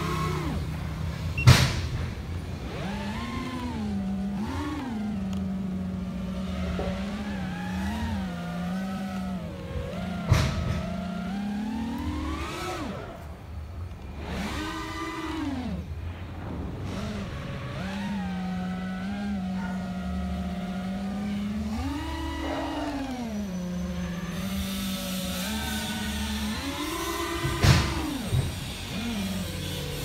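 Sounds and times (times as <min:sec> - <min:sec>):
drone motors whining: 0:00.0 - 0:30.0.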